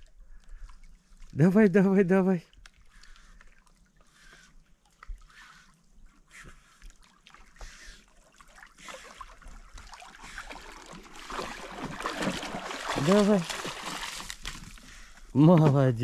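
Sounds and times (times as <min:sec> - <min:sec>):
dog swimming and splashing: 0:03.0 - 0:14.6.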